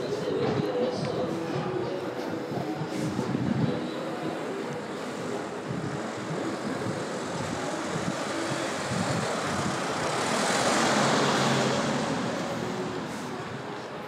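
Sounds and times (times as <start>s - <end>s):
street noise hum: 0.0s - 14.0s
vehicle passing: 4.3s - 14.0s.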